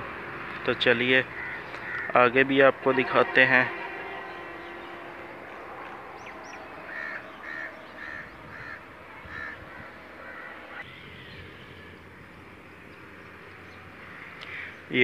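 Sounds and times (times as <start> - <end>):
crow cawing: 1.3 - 2.2, 6.2 - 10.9, 14.0 - 14.8.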